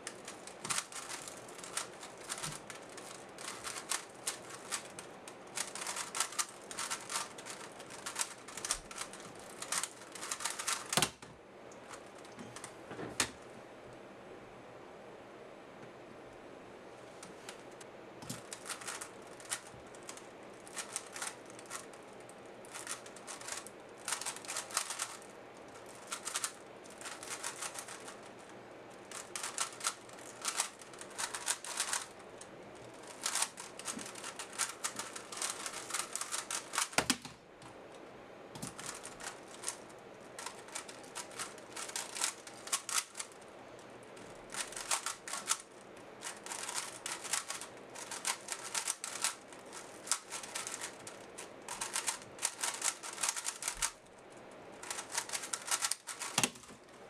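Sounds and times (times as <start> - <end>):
plastic puzzle cube clicking: 0.1 - 5.0, 5.6 - 11.2, 18.2 - 21.9, 22.7 - 25.3, 25.9 - 28.2, 29.1 - 32.1, 33.0 - 37.3, 38.6 - 39.8, 40.4 - 43.3, 44.5 - 54.0, 54.8 - 56.8.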